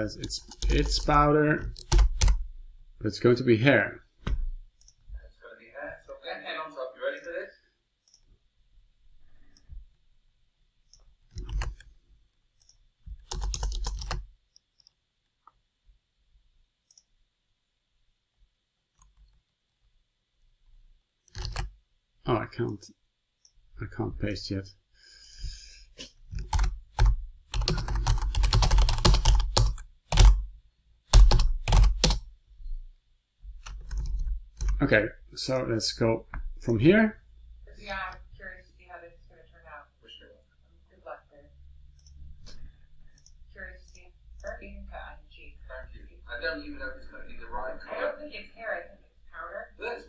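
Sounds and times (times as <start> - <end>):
keyboard typing: 0.0 - 2.5, 10.9 - 11.9, 12.6 - 15.0, 21.3 - 21.8, 26.3 - 30.5, 31.1 - 32.3, 33.6 - 34.9.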